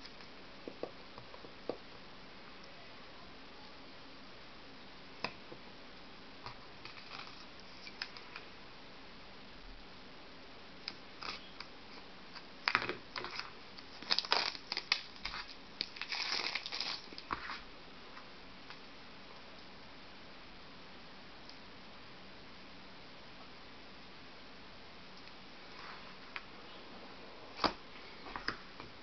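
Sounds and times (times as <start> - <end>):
plastic wrap crinkling: 12.6 - 17.6
knife slitting plastic wrap: 13.2 - 17.3.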